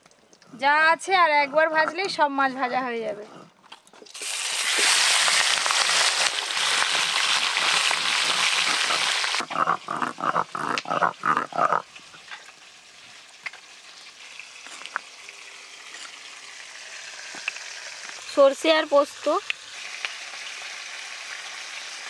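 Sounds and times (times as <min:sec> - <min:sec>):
fish sizzling in oil: 0:04.1 - 0:09.4, 0:12.0 - 0:22.0.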